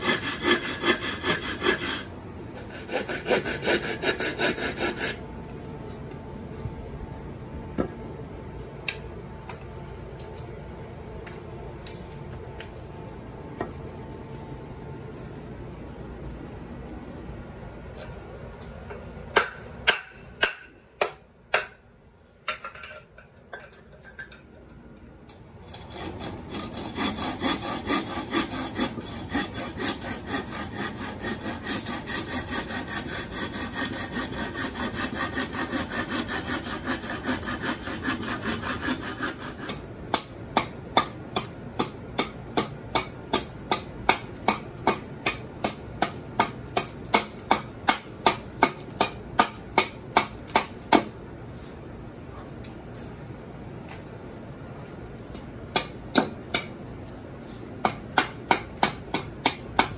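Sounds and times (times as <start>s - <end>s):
knife sawing wood: 0.0s - 5.2s, 25.7s - 39.9s.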